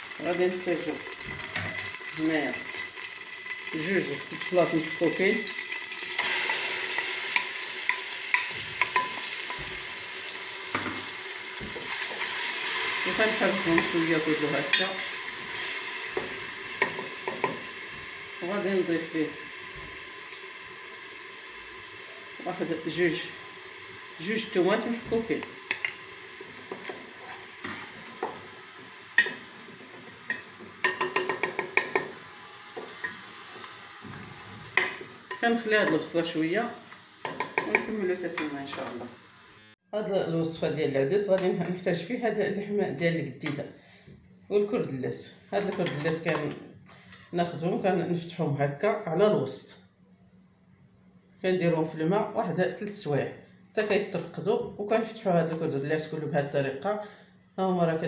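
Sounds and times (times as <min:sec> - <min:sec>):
onions sizzling in oil: 0:00.0 - 0:39.8
wooden spoon knocking on pot: 0:30.3 - 0:32.2.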